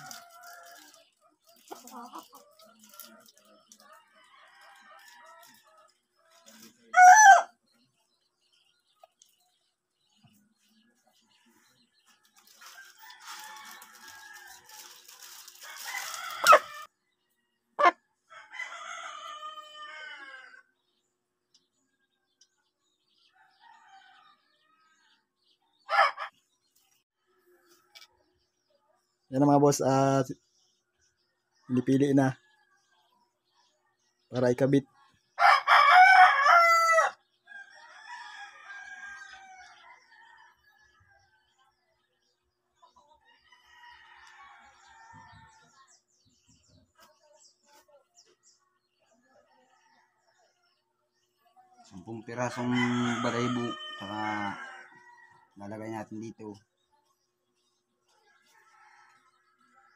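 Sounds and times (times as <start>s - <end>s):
rooster crowing: 6.9s - 7.5s, 35.4s - 40.6s, 52.6s - 55.4s
chickens calling: 17.8s - 18.0s.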